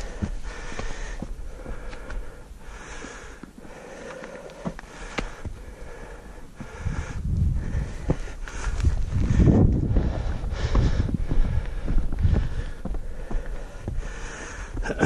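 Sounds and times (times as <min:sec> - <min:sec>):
boots and hands clicking on rock: 0:00.0 - 0:05.6
person breathing hard: 0:00.0 - 0:15.0
wind buffeting the microphone: 0:06.5 - 0:14.3.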